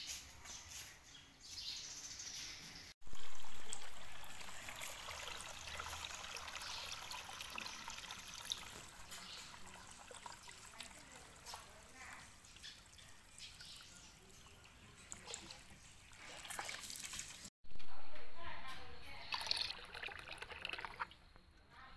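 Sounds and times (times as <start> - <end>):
water splashing into plastic basin: 3.0 - 17.5, 19.2 - 21.2.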